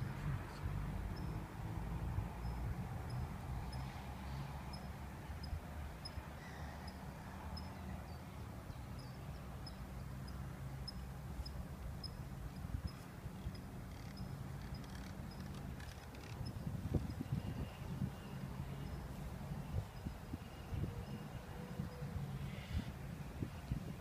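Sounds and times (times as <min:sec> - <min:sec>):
wind buffeting microphone: 0:15.8 - 0:24.0.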